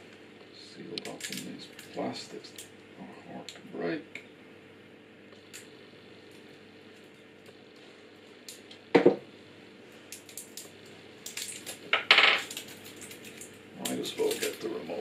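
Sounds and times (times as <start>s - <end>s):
plastic crinkling and crackling: 1.0s - 2.0s, 10.1s - 14.8s.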